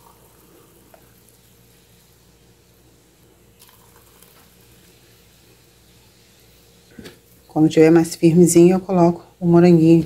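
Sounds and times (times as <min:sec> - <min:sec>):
thick mousse pouring: 0:00.0 - 0:06.7
steady low hum: 0:00.0 - 0:10.0.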